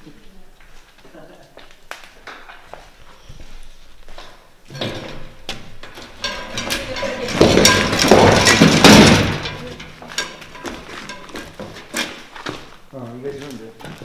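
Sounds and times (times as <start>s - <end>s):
metal and debris crashing: 4.7s - 12.3s
footsteps on littered floor: 5.4s - 14.0s.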